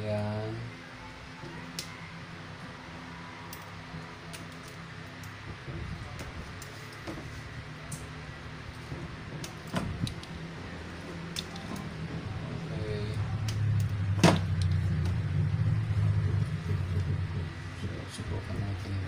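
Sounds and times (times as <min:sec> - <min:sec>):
wire cutters snipping wire: 0:07.8 - 0:10.4, 0:11.3 - 0:12.0, 0:13.1 - 0:15.2
low rumble: 0:08.9 - 0:19.0.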